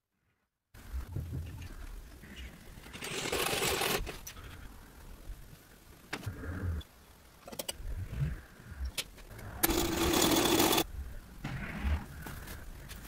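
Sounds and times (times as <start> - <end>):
sewing machine stitching: 2.9 - 4.2, 9.6 - 10.8.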